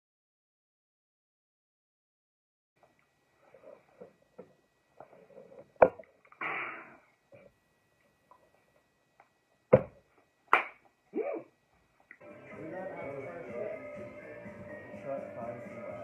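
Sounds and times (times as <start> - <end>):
breathy exhale: 6.4 - 7.1.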